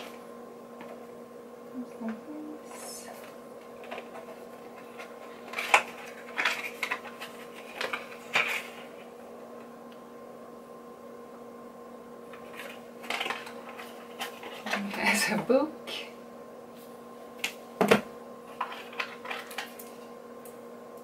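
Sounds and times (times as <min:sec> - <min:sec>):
faint steady hum: 0:00.0 - 0:21.0
cardboard packaging clicks and rustles: 0:03.8 - 0:09.1, 0:12.3 - 0:14.9, 0:17.4 - 0:20.1.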